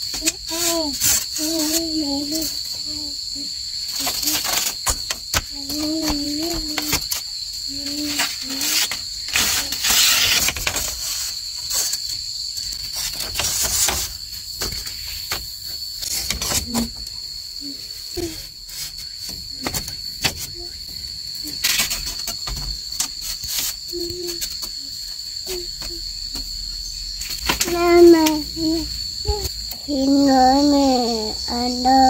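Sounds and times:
high-pitched insect drone: 0.0s - 32.0s
bamboo poles knocking and clattering: 21.5s - 24.8s.

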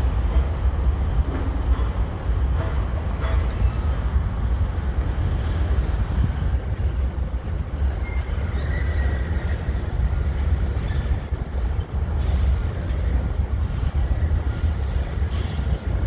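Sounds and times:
train wheels rumbling on rail: 0.0s - 16.0s
high wheel squeal: 7.9s - 11.3s.

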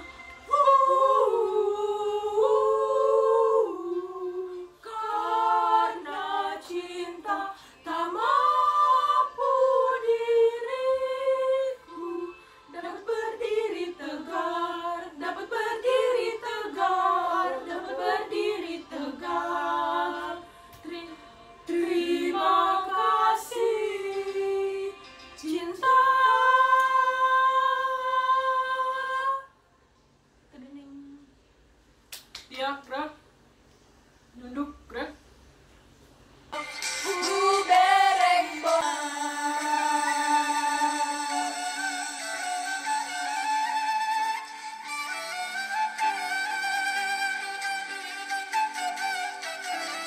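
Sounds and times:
girls singing unaccompanied: 0.0s - 29.5s, 36.6s - 42.3s.

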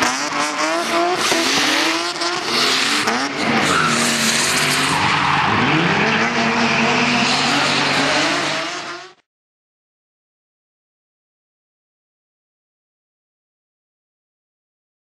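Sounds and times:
car engine revving: 0.0s - 9.2s
tyres squealing: 0.5s - 8.4s.

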